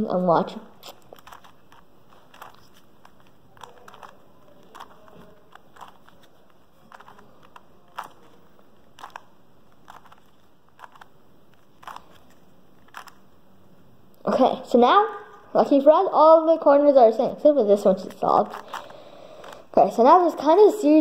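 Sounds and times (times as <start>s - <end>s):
plastic puzzle cube clicking: 0.8s - 13.3s, 18.0s - 19.7s.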